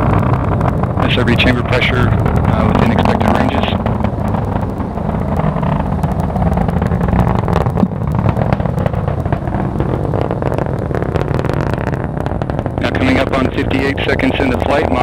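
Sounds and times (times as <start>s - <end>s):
rocket engine rumbling and crackling: 0.0s - 15.0s.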